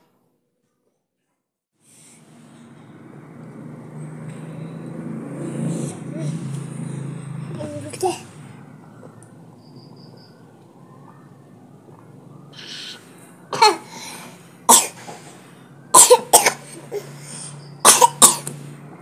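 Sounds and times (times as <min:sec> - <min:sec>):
person coughing: 0:16.0 - 0:17.1, 0:17.9 - 0:18.5.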